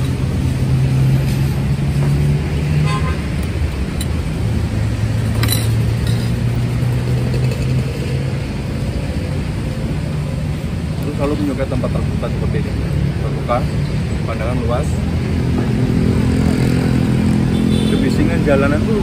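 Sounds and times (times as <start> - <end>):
traffic engine hum: 0.0 - 19.0
vehicle horn toot: 2.8 - 3.2, 17.5 - 18.2.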